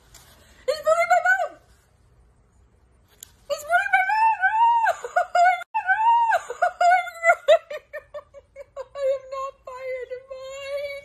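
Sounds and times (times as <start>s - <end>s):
woman wailing and whimpering: 4.1s - 11.0s.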